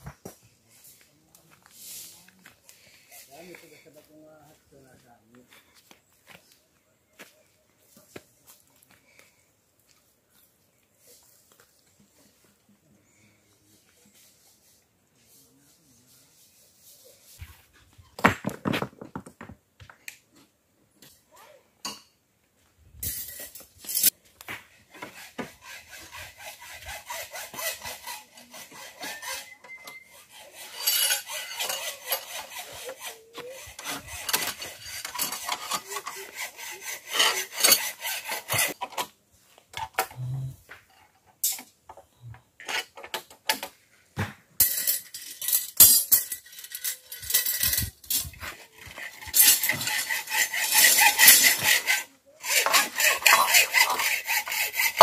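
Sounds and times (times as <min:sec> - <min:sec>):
hand tool rasping: 0:24.8 - 0:39.0, 0:44.8 - 0:55.0.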